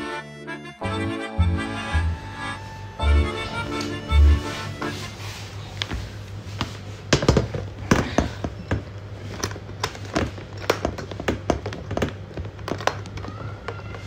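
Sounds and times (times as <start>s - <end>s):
hard case clicks and knocks: 7.1s - 13.3s.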